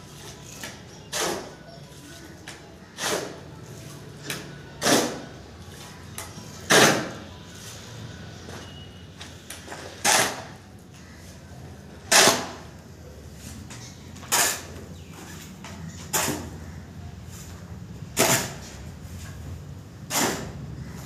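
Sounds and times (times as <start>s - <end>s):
hoe scraping concrete floor: 13.4s - 15.4s, 16.0s - 16.6s, 20.1s - 20.6s.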